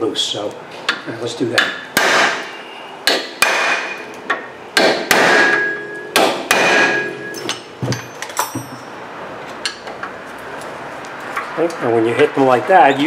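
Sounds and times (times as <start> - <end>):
hammer striking metal: 1.6 - 8.9.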